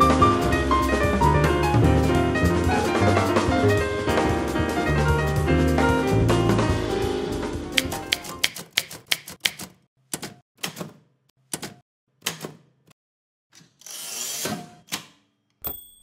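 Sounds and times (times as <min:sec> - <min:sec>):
typewriter keys striking: 0:07.8 - 0:12.6.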